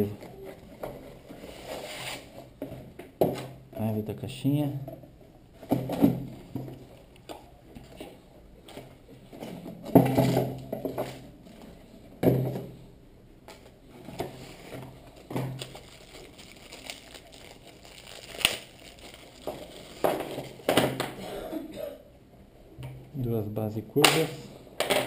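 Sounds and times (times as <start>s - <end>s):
packaging rustling: 14.3s - 21.1s.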